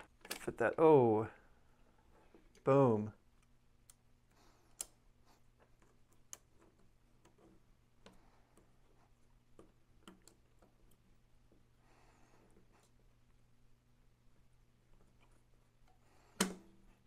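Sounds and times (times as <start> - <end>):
small plastic clicks and taps: 9.5 - 11.0.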